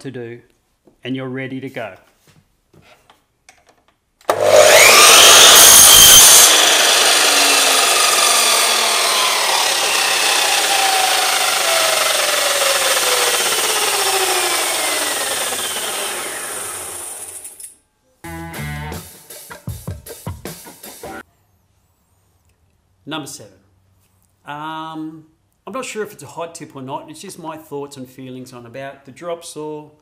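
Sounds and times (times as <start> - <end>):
mitre saw motor whining: 4.3 - 17.6
saw blade cutting timber: 4.3 - 17.6
saw blade spinning down: 4.3 - 17.7.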